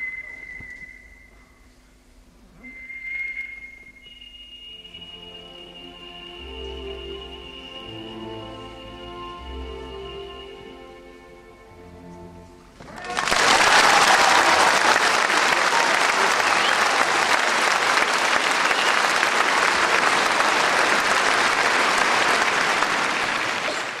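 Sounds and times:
orchestra note: 4.7 - 11.6
audience applause: 12.8 - 24.0.

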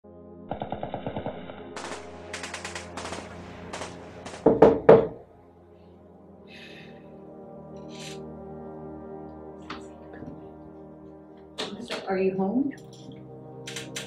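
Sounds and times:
low steady drone: 0.0 - 14.0
automatic gunfire: 0.5 - 4.8
loud blasts: 0.5 - 5.0.

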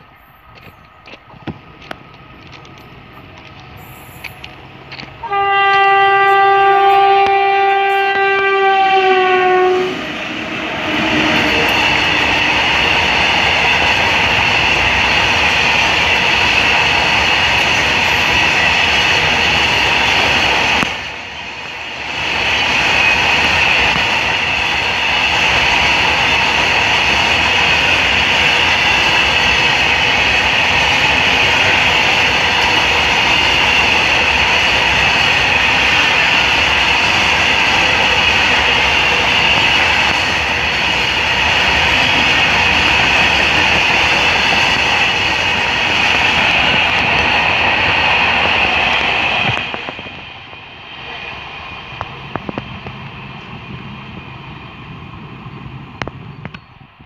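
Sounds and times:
train wheels rumbling on rails: 0.0 - 57.0
locomotive air horn blast: 5.2 - 10.1.

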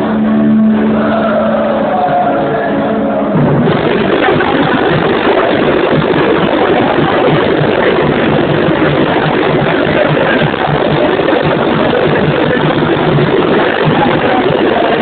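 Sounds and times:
low drum beats: 3.2 - 15.0
snare drums rattling: 3.6 - 15.0.

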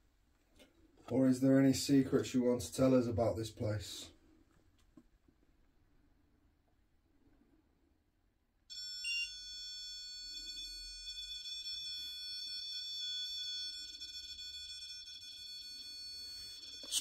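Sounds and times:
high-pitched electronic alarm tone: 8.7 - 17.0.

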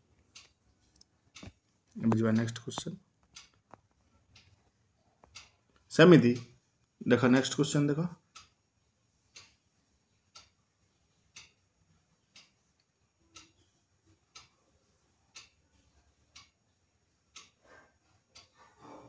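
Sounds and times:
clock ticking: 0.1 - 19.0.

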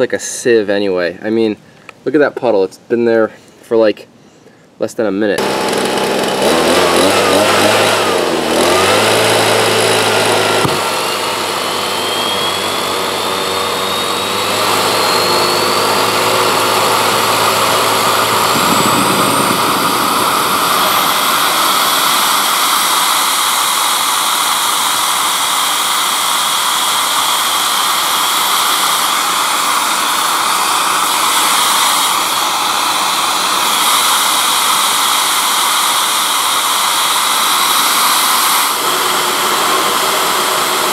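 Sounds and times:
leaf blower engine: 5.4 - 40.9
rushing jet roar: 5.4 - 40.9
turbine whine rising in pitch: 5.4 - 40.9.

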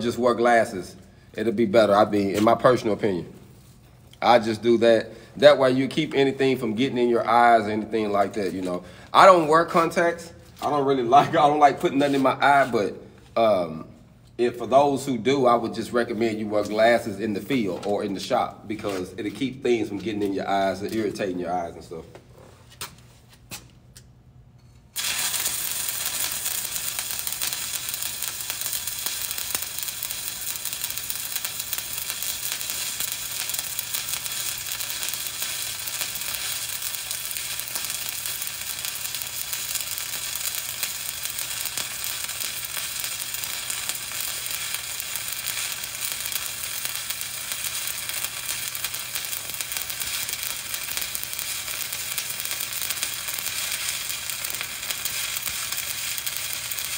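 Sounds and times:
welding arc crackling hiss: 0.0 - 12.8, 24.9 - 56.9.

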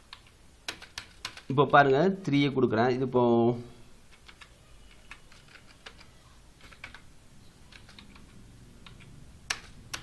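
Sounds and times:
keyboard typing: 0.1 - 1.5, 4.1 - 10.0.

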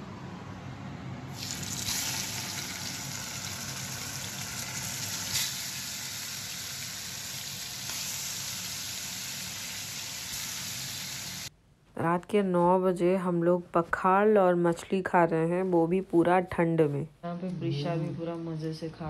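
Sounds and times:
fish sizzling in hot oil: 1.4 - 11.5.

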